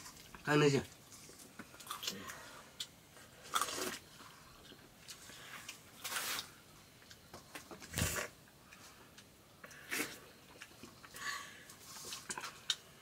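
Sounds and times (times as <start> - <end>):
soft eating noises: 0.0 - 13.0
person slurping: 9.7 - 10.3.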